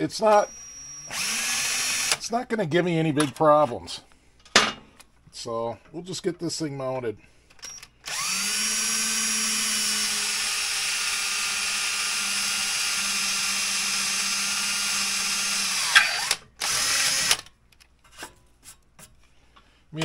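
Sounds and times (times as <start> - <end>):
cordless drill running: 0.3 - 2.2, 7.6 - 17.5.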